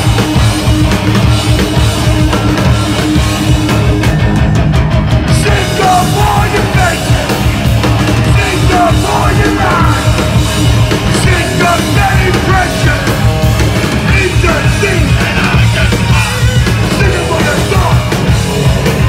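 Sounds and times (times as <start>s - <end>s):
hardcore band playing live: 0.0s - 19.0s
singer shouting into microphone: 8.3s - 10.2s.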